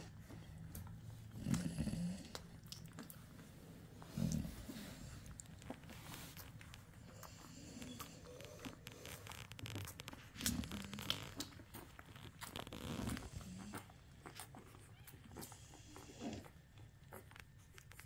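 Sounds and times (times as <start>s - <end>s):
puppies suckling: 0.0s - 18.0s
puppy grunts: 1.3s - 2.5s, 13.0s - 17.3s.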